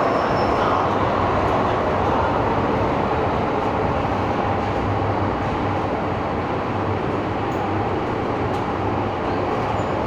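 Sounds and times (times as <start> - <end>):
train wheels on rails: 0.0 - 10.0.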